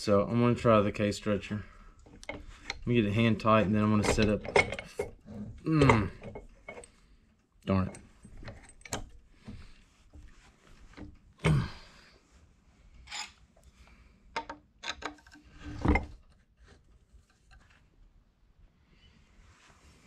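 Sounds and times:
metal clinks and scraping: 2.1s - 7.0s, 13.0s - 13.4s.

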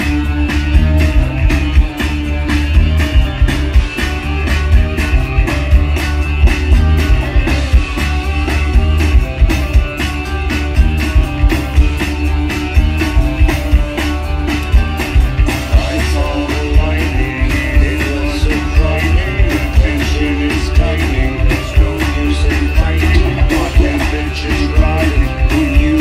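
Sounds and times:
bass guitar: 0.0s - 26.0s
drum kit beat: 0.0s - 26.0s
electric guitar: 0.0s - 26.0s
man singing: 15.7s - 26.0s.

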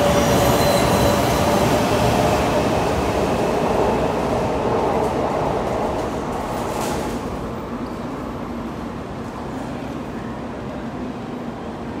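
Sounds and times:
high-speed train pulling away: 0.0s - 8.9s.

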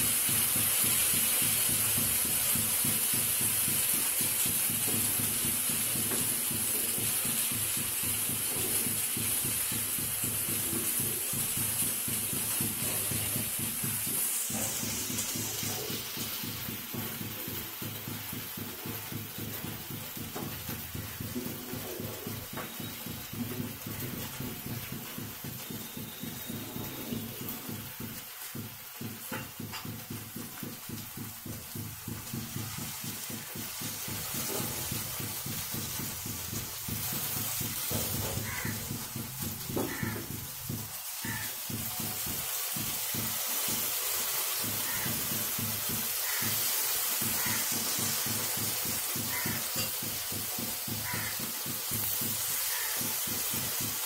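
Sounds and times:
food sizzling in a frying pan: 0.0s - 54.0s
wooden spatula tapping: 27.8s - 43.8s.

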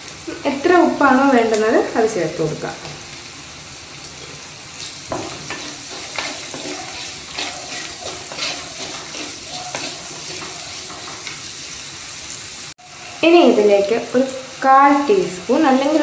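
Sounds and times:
food sizzling in oil: 0.0s - 16.0s
wooden spatula scraping and tapping: 5.1s - 11.4s.

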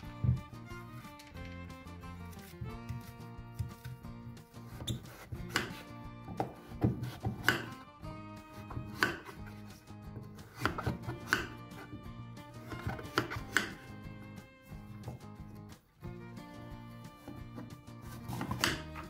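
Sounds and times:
quiet background music: 0.0s - 19.0s
knife slicing pumpkin: 2.3s - 7.8s, 8.4s - 15.5s, 17.1s - 19.0s.

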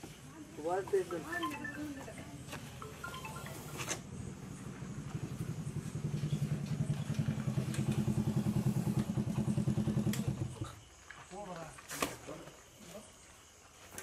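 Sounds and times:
small engine idling: 3.2s - 10.8s.

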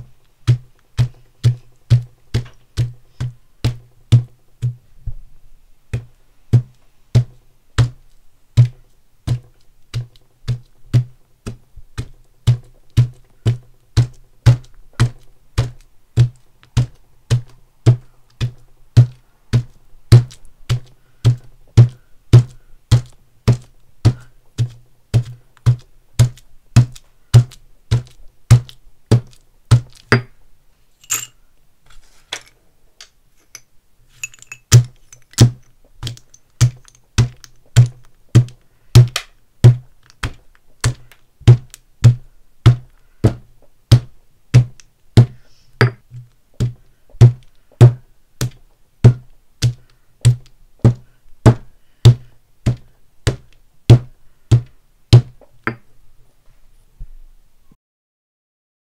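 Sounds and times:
pestle pounding chalk in mortar: 0.0s - 4.9s, 5.9s - 30.4s, 34.7s - 55.9s
light pestle taps: 34.3s - 55.8s.

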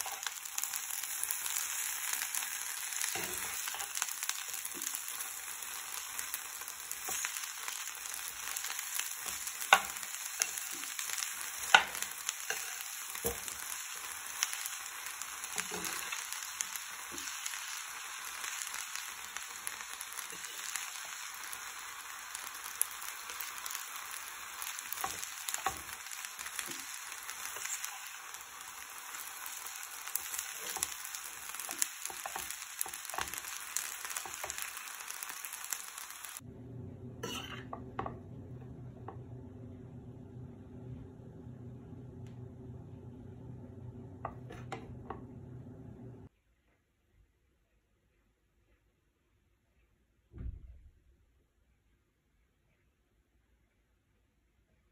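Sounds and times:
pasta sizzling in a frying pan: 0.0s - 46.3s
metal spoon scraping a pan: 11.6s - 13.5s, 37.2s - 37.8s.

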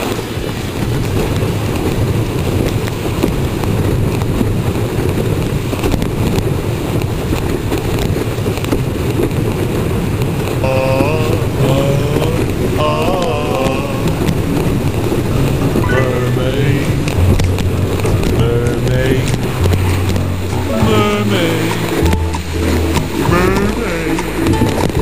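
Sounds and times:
water rushing along board: 0.0s - 25.0s
wind buffeting microphone: 0.0s - 25.0s
person's voice: 10.6s - 14.2s, 15.8s - 17.2s, 18.3s - 19.6s, 20.5s - 22.1s, 23.2s - 24.5s.

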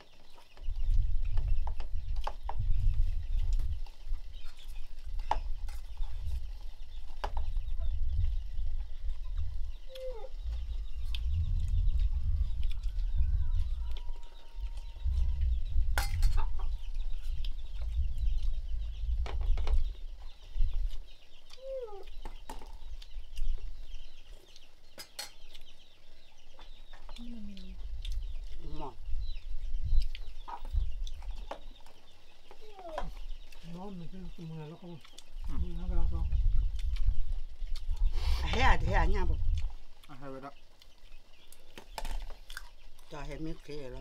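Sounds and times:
chickens clucking: 0.0s - 44.0s
low rumble: 7.6s - 20.9s.

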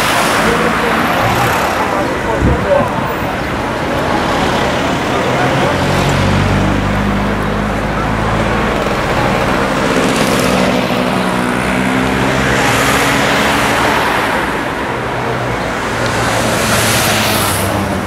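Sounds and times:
vehicles passing by: 0.0s - 18.0s.

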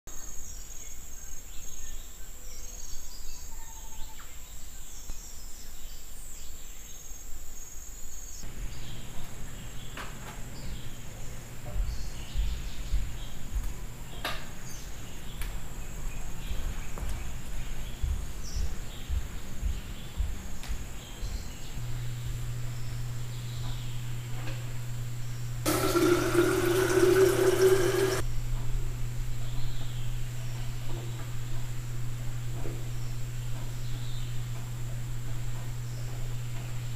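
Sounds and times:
low steady hum: 8.4s - 36.9s.

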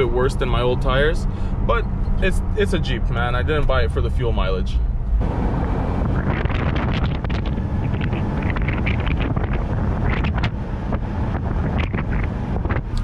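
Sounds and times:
tires rolling on asphalt: 0.0s - 13.0s
wind buffeting microphone: 4.9s - 13.0s.

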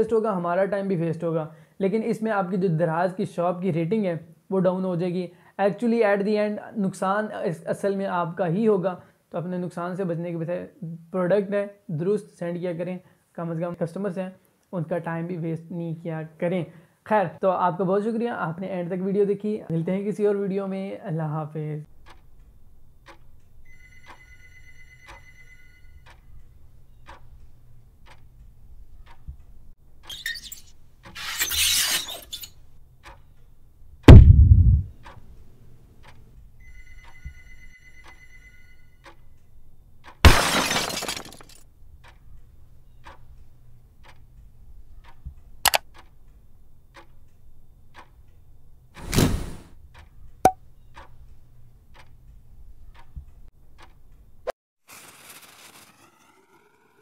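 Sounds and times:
faint steady ticking: 21.8s - 30.1s, 32.5s - 34.1s, 34.7s - 40.2s, 41.7s - 49.0s, 49.7s - 54.4s
electronic ringing tone: 23.7s - 26.0s
crash: 34.1s - 34.8s, 54.9s - 57.0s
heavy low thud: 34.1s - 35.0s
sharp clicks: 44.0s - 46.2s
whoosh: 55.5s - 57.0s.

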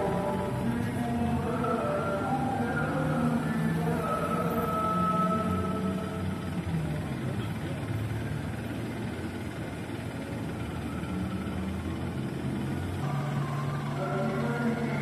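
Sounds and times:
bus engine idling: 0.0s - 15.0s.

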